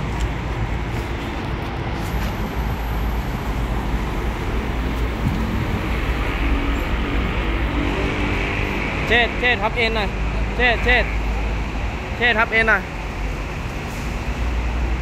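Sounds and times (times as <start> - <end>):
low rumble of vehicles: 0.0 - 15.0.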